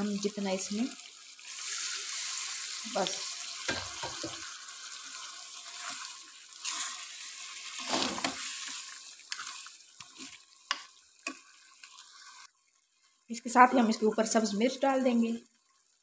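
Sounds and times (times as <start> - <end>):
meat sizzling in hot oil: 0.0 - 12.5
spoon scraping a wok: 7.7 - 12.5.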